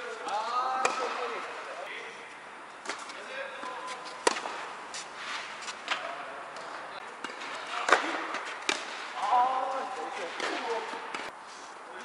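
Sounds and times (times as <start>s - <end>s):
tennis ball struck by rackets: 0.8s - 1.4s, 4.2s - 4.7s, 5.3s - 9.2s.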